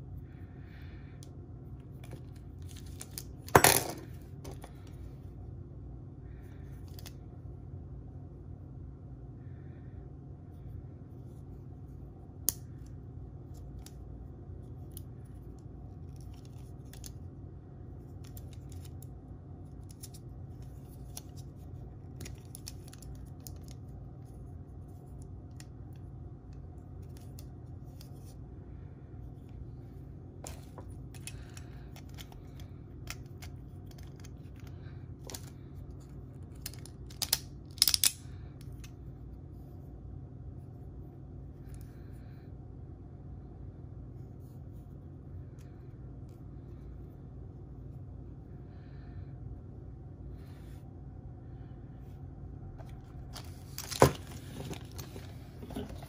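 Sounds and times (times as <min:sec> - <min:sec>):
low background hum: 0:00.0 - 0:56.0
plastic parts clicking and rattling: 0:30.4 - 0:35.6, 0:36.4 - 0:38.9, 0:52.8 - 0:56.0.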